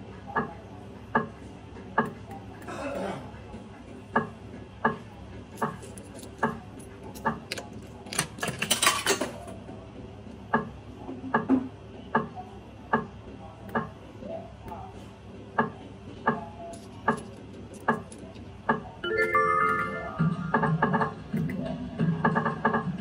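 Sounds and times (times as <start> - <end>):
slot machine ticking: 19.0 - 20.8.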